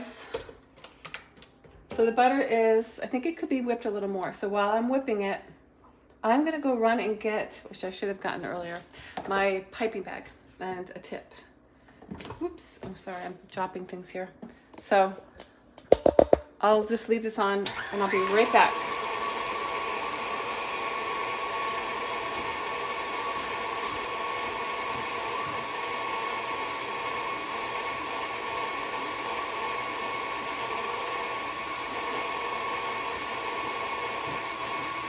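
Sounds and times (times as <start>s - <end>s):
stand mixer whining: 17.7s - 35.0s.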